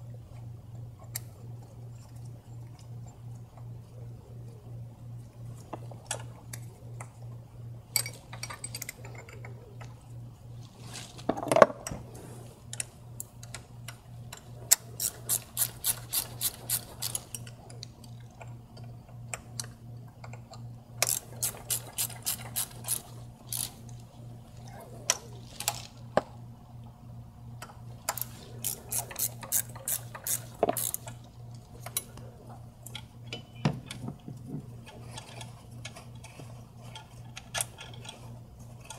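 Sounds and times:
low steady hum: 0.0s - 38.9s
hand ratchet clicking: 14.3s - 17.5s, 21.0s - 23.9s, 28.0s - 31.2s.

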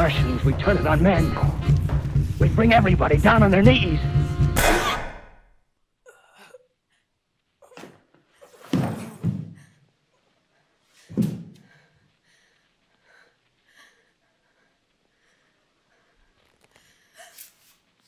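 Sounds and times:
sharp loud bang: 4.6s - 5.4s
faint rustling and movement: 6.9s - 18.0s.

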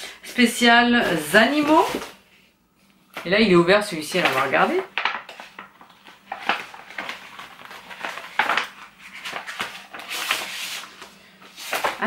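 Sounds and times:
paper and packaging rustling: 1.0s - 2.2s, 4.1s - 12.0s.

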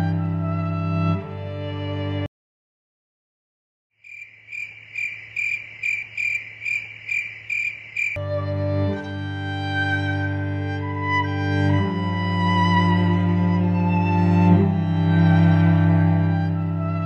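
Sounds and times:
bowed string music: 0.0s - 2.3s, 8.2s - 17.0s
cricket chirping sound effect: 4.0s - 8.2s.

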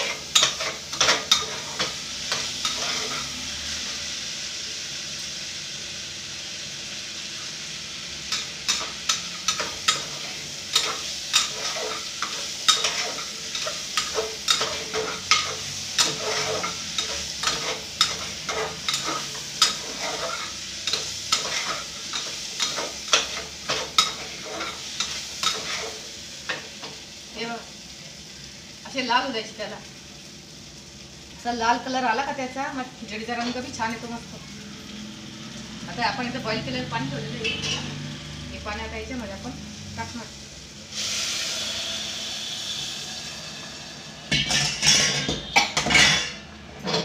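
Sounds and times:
metal spoon stirring and scraping: 0.0s - 3.5s, 8.3s - 26.7s
food sizzling in a pot: 0.0s - 47.0s.

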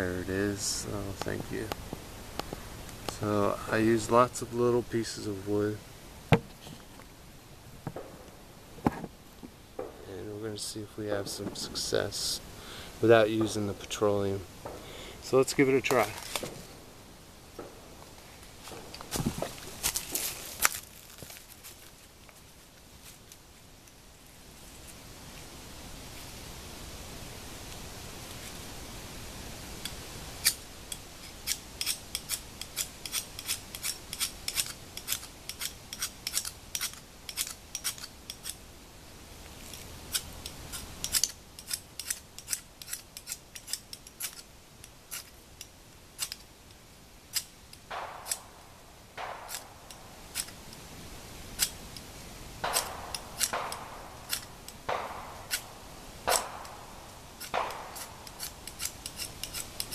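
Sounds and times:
striker scraping fire-starter rod: 15.3s - 16.7s, 29.8s - 38.6s, 39.6s - 46.5s, 49.2s - 50.9s, 51.6s - 55.7s, 57.4s - 59.9s.

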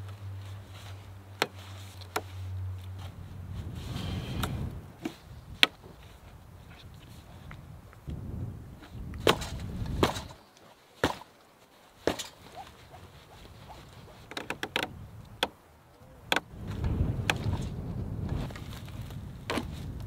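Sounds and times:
wooden knocks and clicks: 14.2s - 15.6s, 16.3s - 17.6s
low rumble: 16.5s - 20.0s.

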